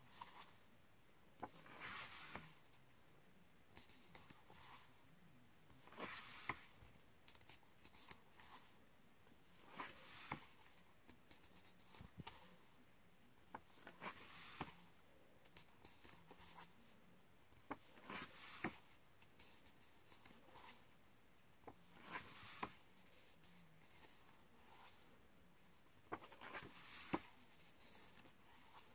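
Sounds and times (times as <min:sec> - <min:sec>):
paper pages turning: 0:05.9 - 0:08.7, 0:17.7 - 0:20.8, 0:21.9 - 0:25.0, 0:26.1 - 0:28.9.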